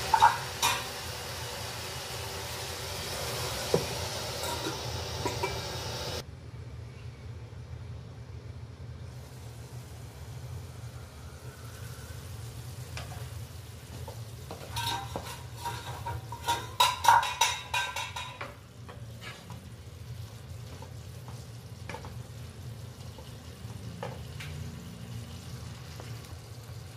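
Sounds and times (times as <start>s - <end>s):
utensil stirring and scraping pan: 13.9s - 22.2s.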